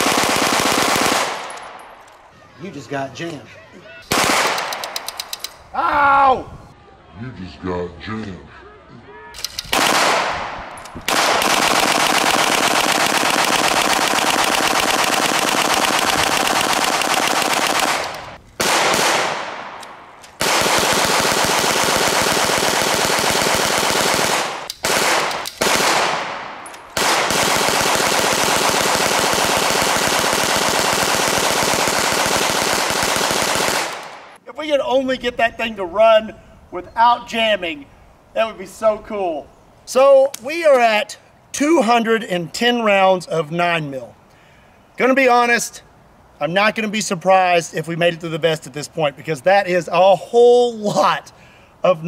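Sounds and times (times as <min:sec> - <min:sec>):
gatling gun rapid firing: 0:00.0 - 0:01.5, 0:04.1 - 0:05.0, 0:09.7 - 0:10.3, 0:11.1 - 0:19.6, 0:20.4 - 0:26.4, 0:27.0 - 0:34.2.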